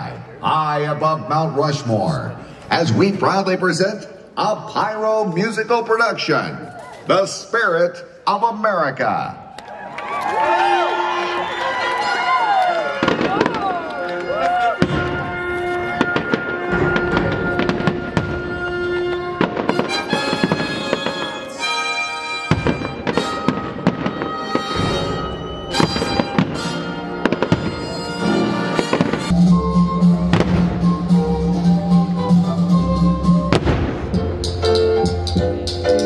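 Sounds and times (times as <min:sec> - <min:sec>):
firework bursts and crackling bangs: 0:12.8 - 0:21.8, 0:22.4 - 0:29.4, 0:30.3 - 0:31.0, 0:33.5 - 0:34.2
music with long held notes: 0:13.9 - 0:36.0.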